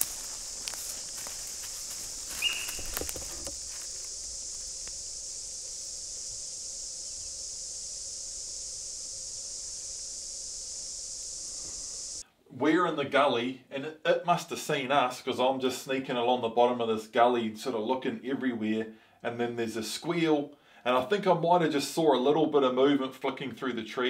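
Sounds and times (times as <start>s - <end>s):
footsteps crunching through litter: 0.0s - 4.7s
steady high hiss: 0.0s - 12.8s
deer alarm squeal: 2.4s - 3.0s.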